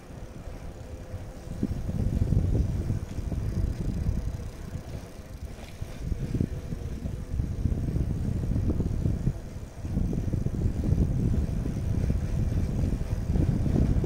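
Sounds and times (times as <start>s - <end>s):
bicycle road noise on asphalt: 0.0s - 14.0s
wind rumble on microphone: 0.0s - 14.0s.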